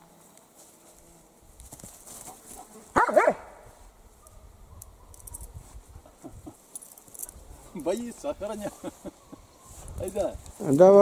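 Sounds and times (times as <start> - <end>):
dog barking: 3.0 - 3.5, 4.2 - 5.3.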